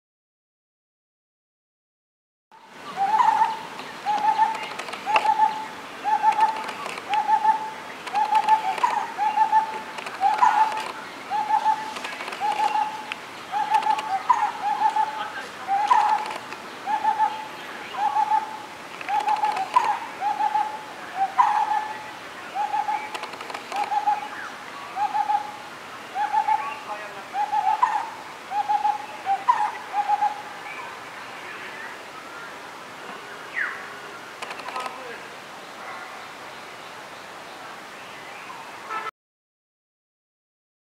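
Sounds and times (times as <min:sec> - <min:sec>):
barbet calling: 0:02.9 - 0:31.0, 0:33.5 - 0:35.1.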